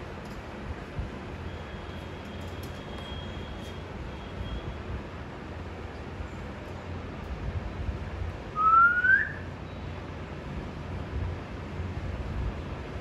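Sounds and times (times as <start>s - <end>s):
parakeet rising whistle: 8.6s - 9.4s.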